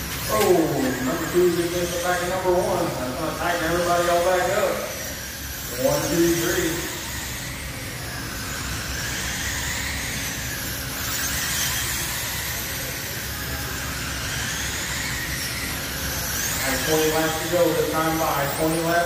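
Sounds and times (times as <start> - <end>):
rc car motors whining: 0.0 - 19.0.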